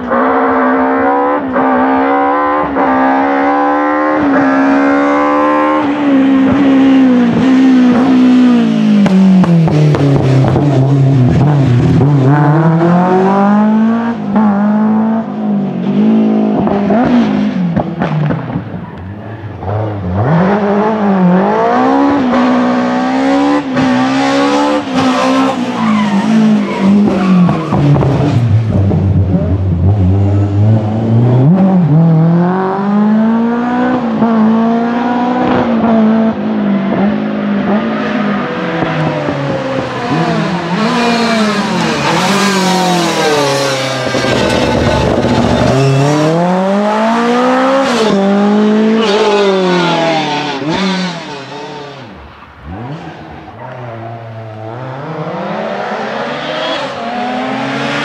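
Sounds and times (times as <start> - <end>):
rally car engine revving: 0.0 - 58.0.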